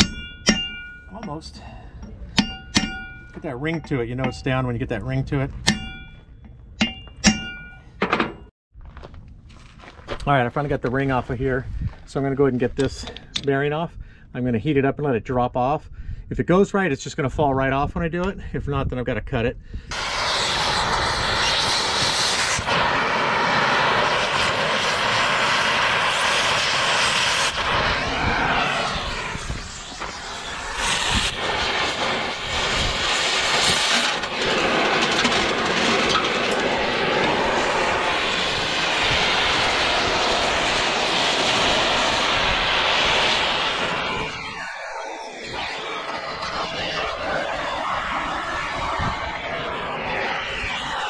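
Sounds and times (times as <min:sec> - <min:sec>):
torch flame hissing: 0:19.9 - 0:51.0.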